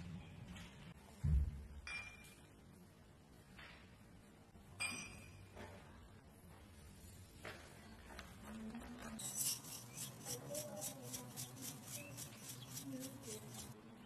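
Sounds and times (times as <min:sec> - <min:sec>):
dried herbs pattering on toast: 0:09.0 - 0:13.8.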